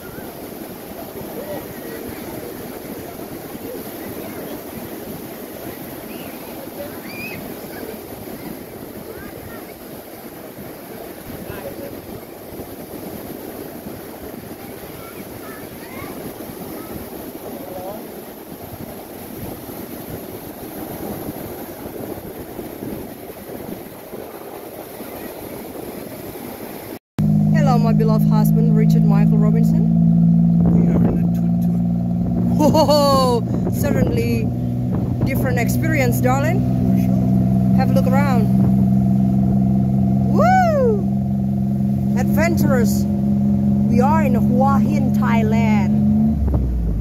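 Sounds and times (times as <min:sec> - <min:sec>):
faint voices: 0:00.0 - 0:12.6
surf washing onto beach: 0:00.0 - 0:47.0
wind buffeting microphone: 0:00.0 - 0:47.0.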